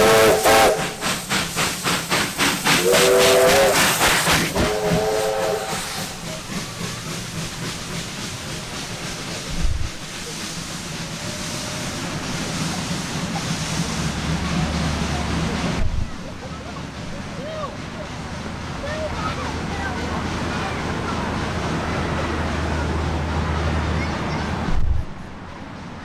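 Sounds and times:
steam whistle blasts: 0.0 - 1.1, 2.8 - 3.9, 4.5 - 6.2
steam locomotive exhaust beats: 0.0 - 26.0.

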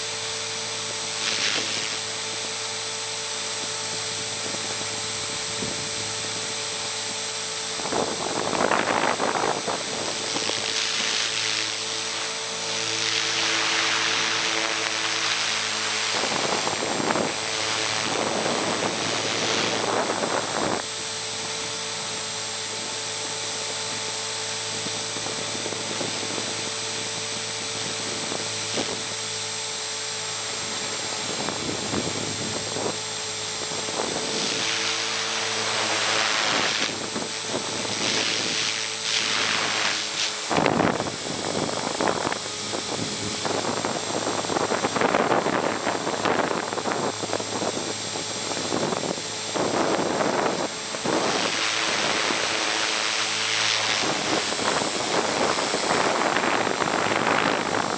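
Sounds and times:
rc helicopter motor whine: 0.0 - 57.9
rushing air: 30.6 - 57.9.

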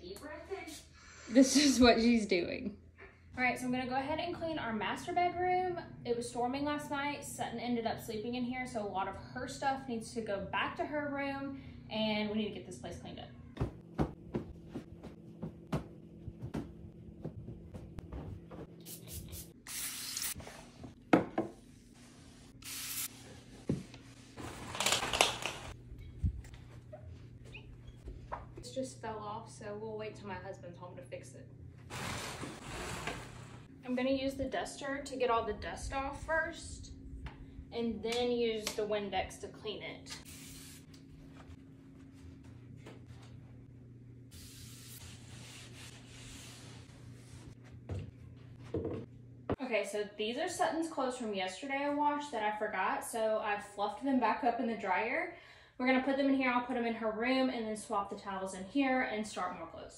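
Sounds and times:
spray bottle hissing bursts: 18.9 - 20.4, 22.6 - 23.1, 40.3 - 40.8
low steady hum: 25.4 - 31.9, 33.1 - 59.9.

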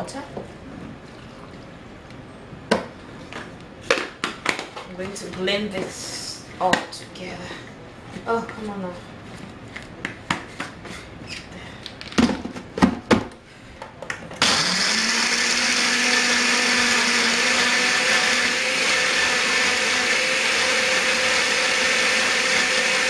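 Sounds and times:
blender motor running: 14.4 - 23.0.

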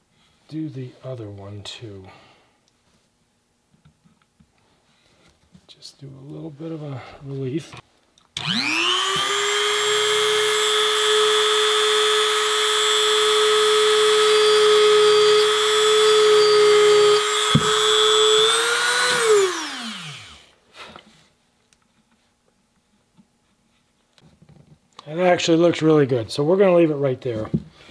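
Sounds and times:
rotary tool whining: 8.4 - 20.6.

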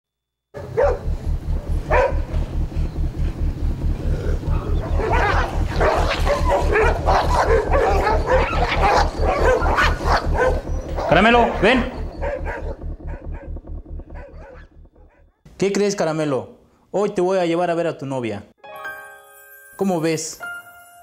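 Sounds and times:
dogs barking and yipping: 0.6 - 3.0, 4.5 - 15.3
low thumping pulse: 0.6 - 15.5.

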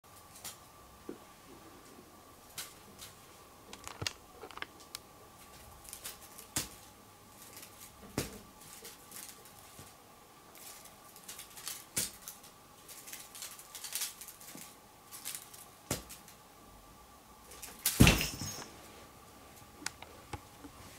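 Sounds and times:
faint steady hum: 0.1 - 20.9
feather toy tapping and rustling: 5.4 - 16.4.

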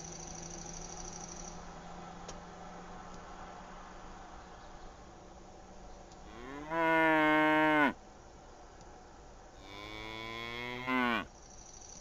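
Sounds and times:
cows mooing: 6.3 - 8.0, 9.6 - 11.3.

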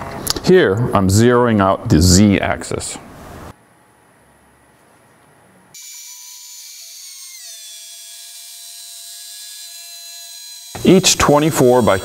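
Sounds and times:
router spindle high whine: 5.8 - 12.0.

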